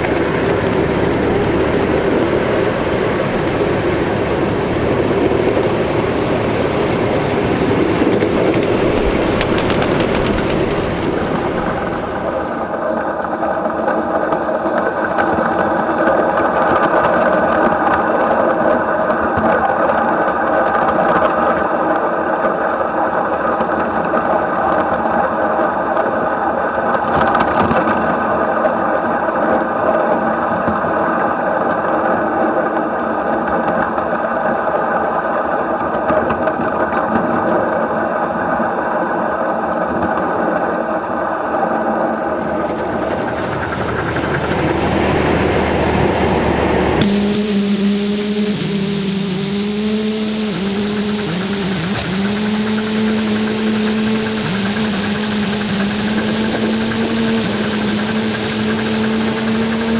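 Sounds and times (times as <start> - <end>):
model steam locomotive running: 0.0 - 59.9
steam hissing: 42.4 - 59.9.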